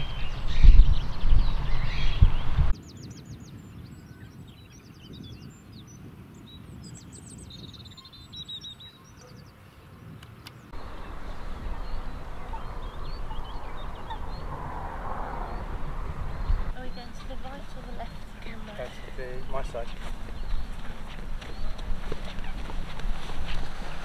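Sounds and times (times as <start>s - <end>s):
songbirds trilling: 0.0s - 24.0s
steady low rumble: 10.7s - 18.6s.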